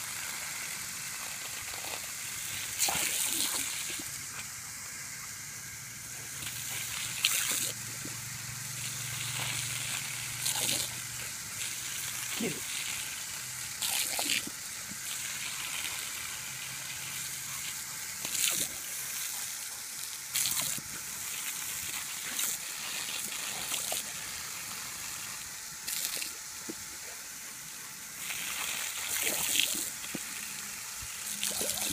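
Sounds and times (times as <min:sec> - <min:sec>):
garden hose water spraying: 0:00.0 - 0:31.9
dog biting and lapping water: 0:00.1 - 0:04.5, 0:06.2 - 0:08.2, 0:08.8 - 0:30.5, 0:31.1 - 0:31.9
water splashing: 0:31.2 - 0:31.9.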